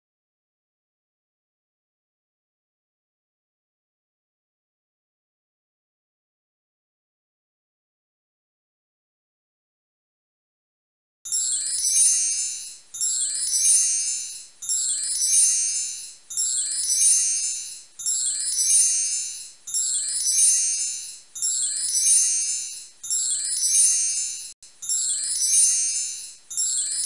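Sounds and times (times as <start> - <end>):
high-pitched tinkling chime: 11.3 - 27.0.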